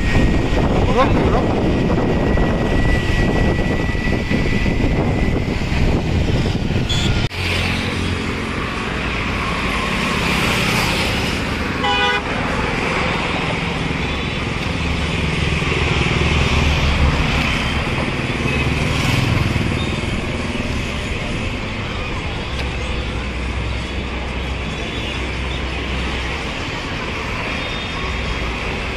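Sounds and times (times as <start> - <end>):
busy road traffic: 0.0 - 28.9
vehicle horn toot: 6.9 - 7.3, 11.8 - 12.4.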